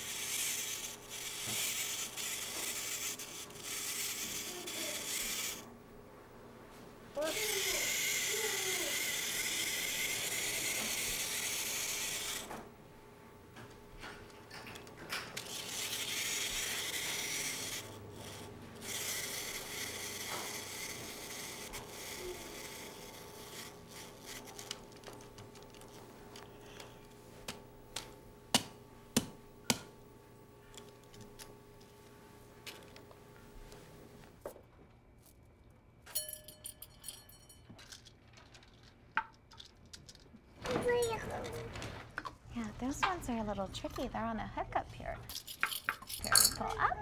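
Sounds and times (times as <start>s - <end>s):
clockwork mechanism whirring: 0.0s - 5.7s, 7.2s - 12.8s, 13.4s - 28.7s.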